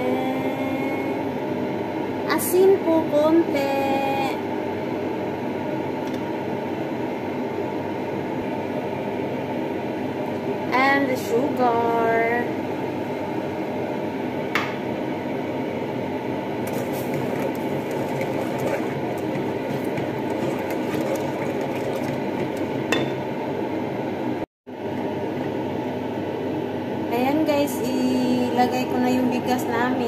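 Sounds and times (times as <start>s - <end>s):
wooden spoon stirring liquid: 16.6s - 23.1s.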